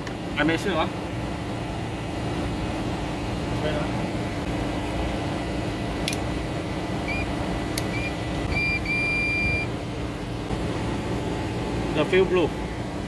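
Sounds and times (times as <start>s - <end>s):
machinery hum: 0.0s - 13.0s
multimeter beeps: 7.0s - 9.7s.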